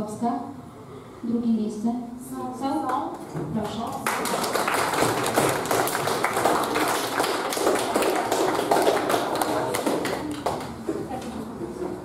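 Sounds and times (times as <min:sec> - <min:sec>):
audience applauding: 0:04.0 - 0:10.8.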